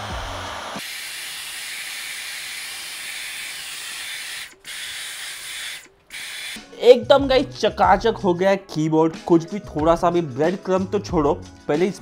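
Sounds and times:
vacuum cleaner suction hiss: 0:00.0 - 0:06.6
background music: 0:05.8 - 0:12.0.

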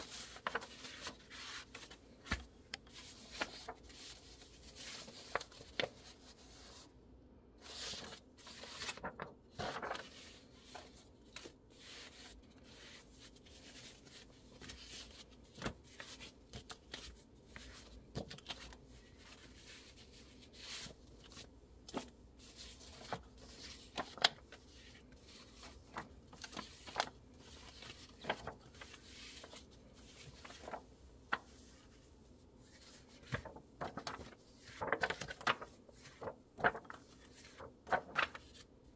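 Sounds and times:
paper rustling: 0:00.0 - 0:06.9, 0:07.6 - 0:38.9
paper flicks and taps: 0:01.8 - 0:03.6, 0:33.2 - 0:38.6.

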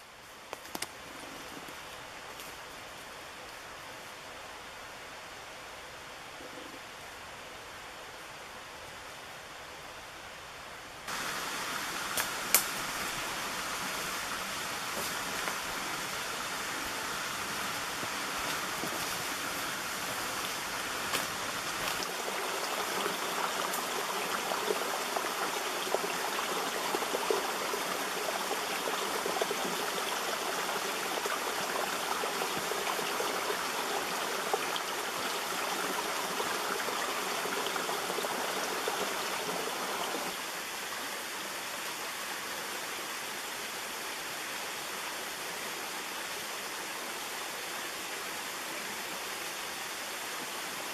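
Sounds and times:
stream water rushing: 0:11.1 - 0:50.9.

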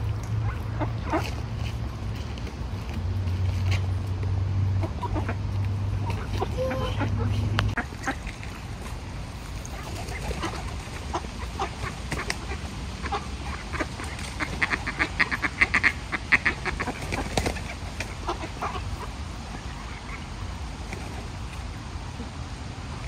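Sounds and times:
ducks quacking: 0:00.4 - 0:01.5, 0:04.6 - 0:09.0, 0:09.6 - 0:20.6.

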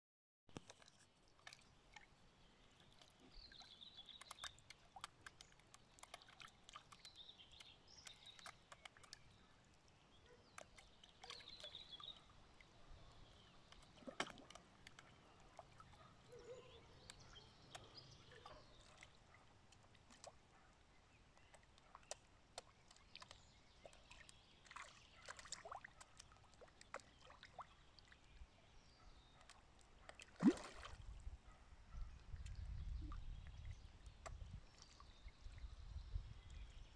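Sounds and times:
fish slurping and splashing: 0:00.6 - 0:07.5, 0:22.0 - 0:27.8.

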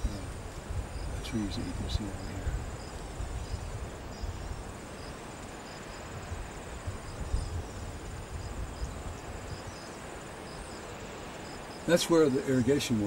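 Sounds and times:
insect chirps: 0:00.0 - 0:13.0
insects trilling: 0:00.0 - 0:13.0.

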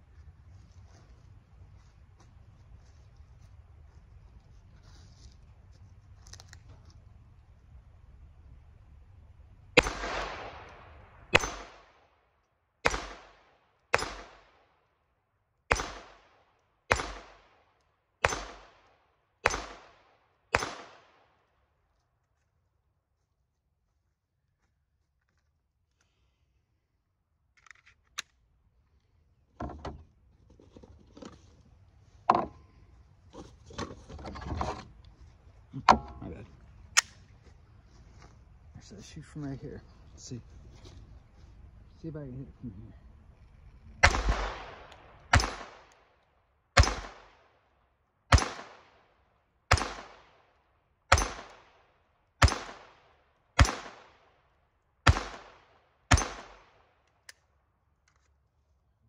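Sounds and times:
pistol shots echoing: 0:09.8 - 0:12.0, 0:12.8 - 0:14.6, 0:15.7 - 0:17.6, 0:18.2 - 0:21.2, 0:44.0 - 0:45.9, 0:46.8 - 0:47.4, 0:48.3 - 0:49.0, 0:49.7 - 0:50.4, 0:51.1 - 0:51.8, 0:52.4 - 0:54.2, 0:55.0 - 0:56.8.

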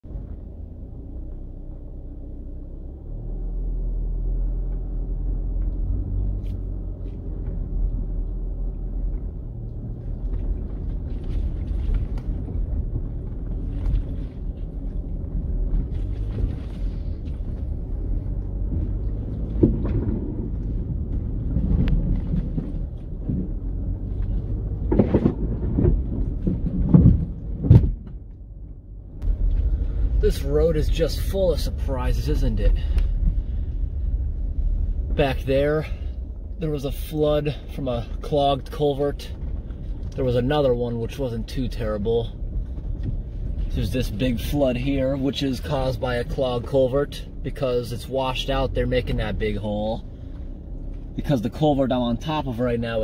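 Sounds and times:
engine and road rumble: 0:00.0 - 0:53.0
knocks and rattles from bumps: 0:09.1 - 0:28.4.

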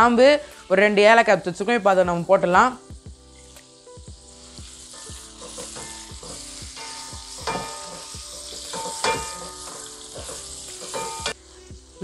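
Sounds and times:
onions sizzling in hot oil: 0:00.0 - 0:12.0
wooden spatula scraping a pot: 0:04.7 - 0:11.2.

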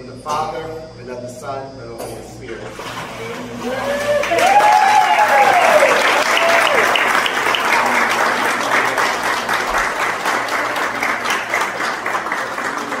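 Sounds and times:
people applauding: 0:03.6 - 0:13.0.

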